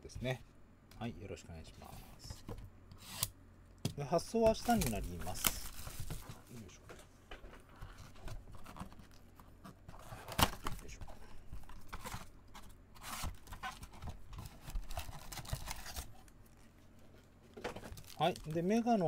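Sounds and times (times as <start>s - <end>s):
cardboard flaps scraping and rustling: 4.5s - 6.8s
foil packs rustling: 4.5s - 6.8s, 13.1s - 16.1s, 17.6s - 19.0s.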